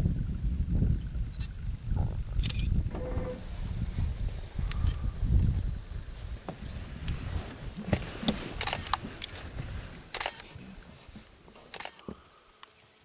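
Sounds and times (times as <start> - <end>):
low rumble: 0.0 - 7.9
camera shutters clicking: 8.6 - 9.0, 10.1 - 10.5, 11.7 - 12.0.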